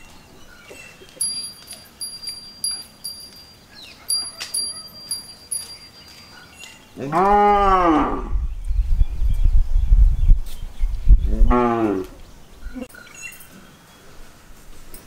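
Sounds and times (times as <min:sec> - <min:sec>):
metal clinks ringing: 0:01.2 - 0:06.8, 0:13.2 - 0:13.6
cow mooing: 0:07.0 - 0:08.4.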